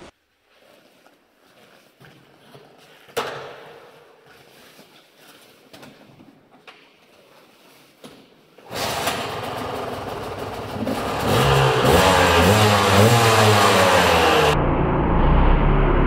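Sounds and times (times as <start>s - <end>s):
dirt bike engine revving: 8.7s - 16.0s.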